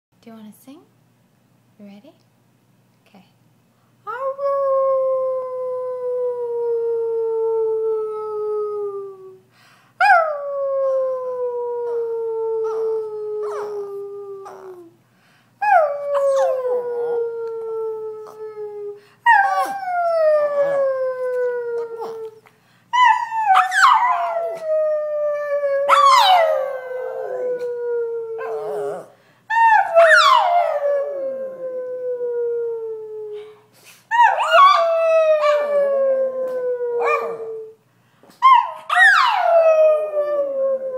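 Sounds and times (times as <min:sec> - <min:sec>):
dog howling: 0:10.1 - 0:14.9, 0:15.6 - 0:22.4, 0:23.0 - 0:33.0, 0:34.2 - 0:37.8.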